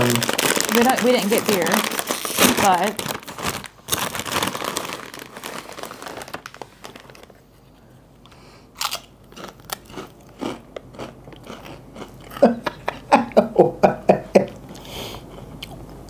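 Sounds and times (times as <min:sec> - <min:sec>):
chip bag crinkling: 0:00.0 - 0:07.5
chips being bitten and chewed: 0:08.8 - 0:12.5.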